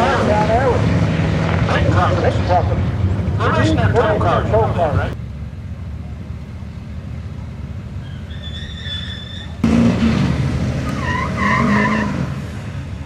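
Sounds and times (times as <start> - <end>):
pickup truck revving hard: 0.0 - 3.6, 8.3 - 13.0
tires squealing and spinning: 0.0 - 5.1, 8.0 - 13.0.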